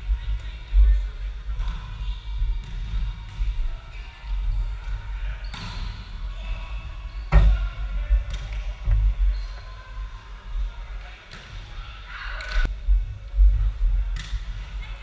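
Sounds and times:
steady low rumble: 12.6s - 14.8s.

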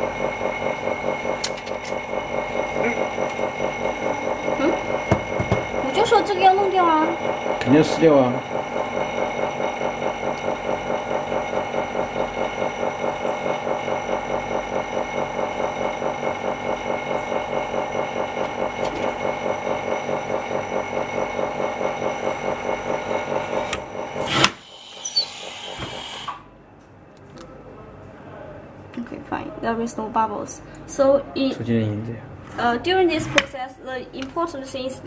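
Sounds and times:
vacuum pump pulsing hum: 0.0s - 26.8s.

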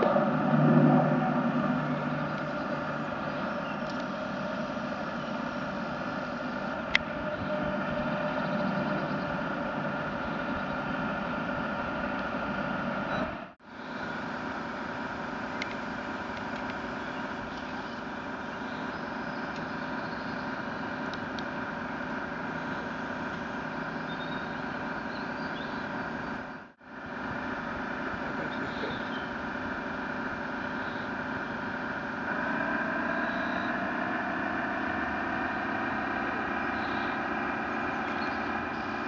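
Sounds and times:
model boat engine drone: 0.0s - 39.0s.

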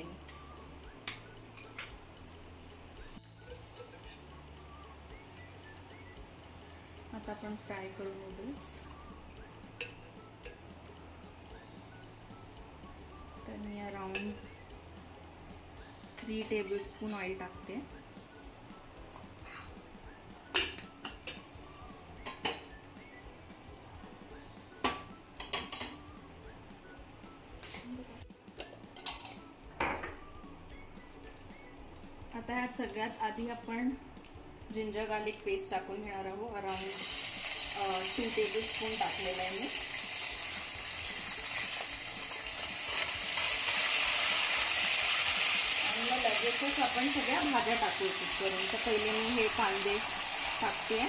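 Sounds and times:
metal cookware clinking: 20.5s - 21.4s, 28.6s - 30.2s
paste sizzling in hot oil: 36.7s - 51.0s.

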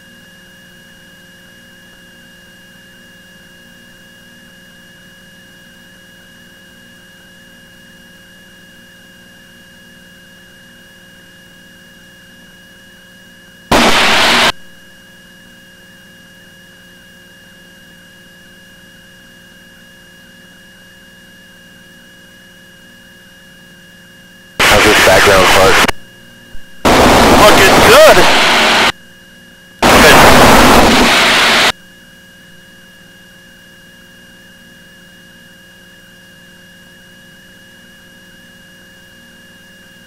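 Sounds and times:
burst of radio static: 13.7s - 14.6s, 24.6s - 26.0s, 26.6s - 28.9s, 29.8s - 31.7s
radio electrical hum and hiss: 13.7s - 14.8s, 24.6s - 28.9s, 29.8s - 31.7s.

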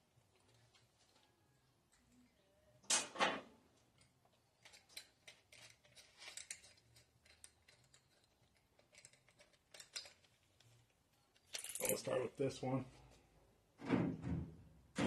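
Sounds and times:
tools clicking and rattling: 3.9s - 12.2s.

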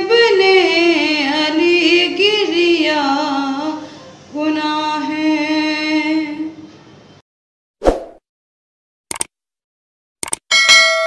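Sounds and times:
woman chanting a lament: 0.0s - 6.6s.

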